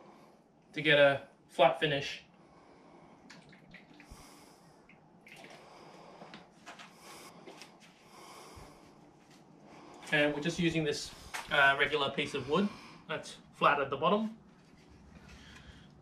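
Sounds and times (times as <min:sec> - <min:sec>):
man gulping and breathing: 0:03.2 - 0:07.6.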